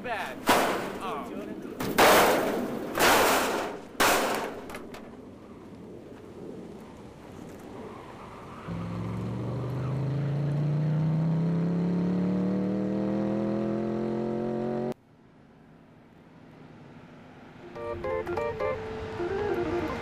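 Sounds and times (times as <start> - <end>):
outdoor rumble: 0.0 - 11.2
engine-like drone rising in pitch: 17.4 - 20.0.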